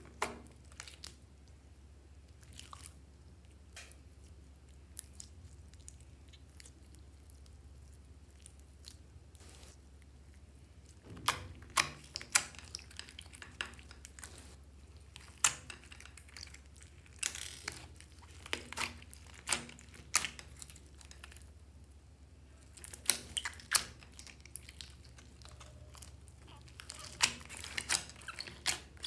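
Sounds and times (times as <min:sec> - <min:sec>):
faint low hum: 0:00.0 - 0:29.0
slime popping and crackling: 0:11.2 - 0:21.6, 0:22.6 - 0:29.0.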